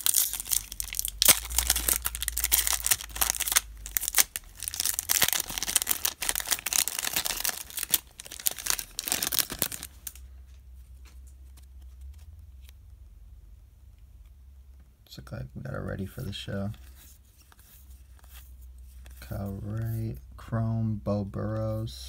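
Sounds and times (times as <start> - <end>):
foil wrapper tearing and crinkling: 0.0 - 10.2.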